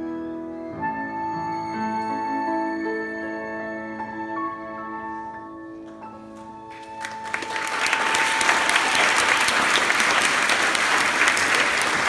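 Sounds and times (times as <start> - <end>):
hands clapping close to microphone: 5.9 - 12.0
audience applauding: 6.4 - 12.0.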